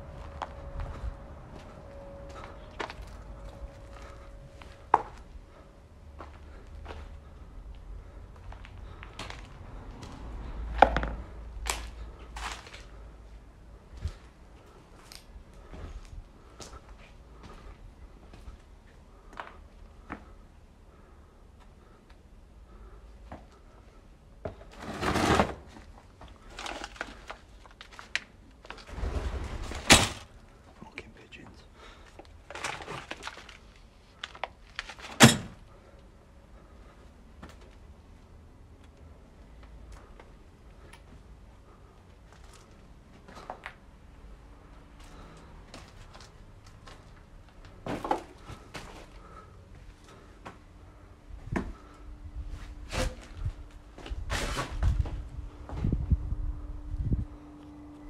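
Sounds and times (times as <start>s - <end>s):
footsteps on rubble: 6.2s - 13.0s
debris crunching and rustling: 10.8s - 13.0s, 24.6s - 30.5s, 31.9s - 35.6s.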